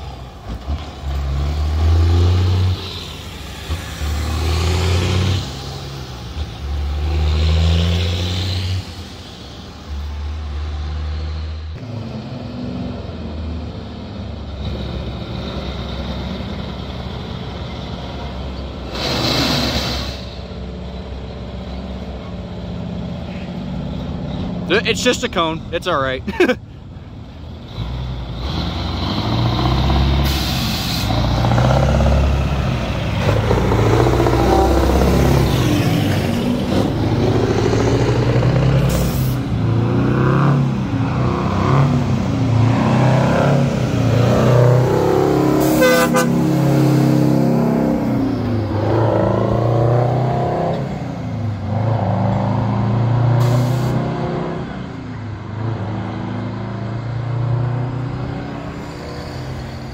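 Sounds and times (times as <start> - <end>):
diesel truck engines accelerating: 0.0 - 59.9
air brake hisses: 18.9 - 20.4, 30.2 - 31.1.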